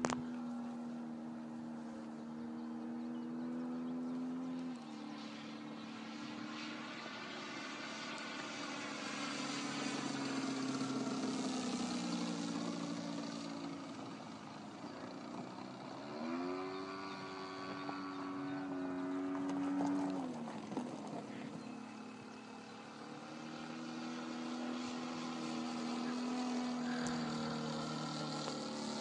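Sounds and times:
model plane engine droning: 0.0 - 29.0.

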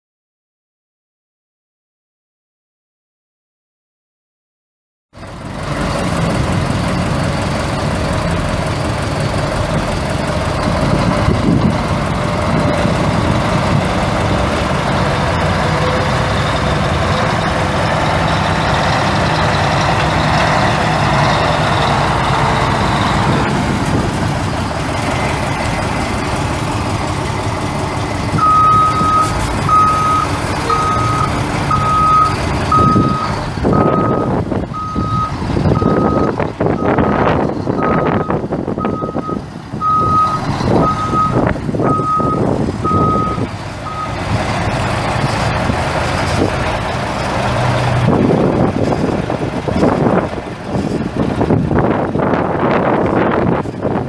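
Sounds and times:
diesel truck engine running: 5.2 - 54.0
backup alarm beeping: 28.4 - 37.2, 37.8 - 44.2.

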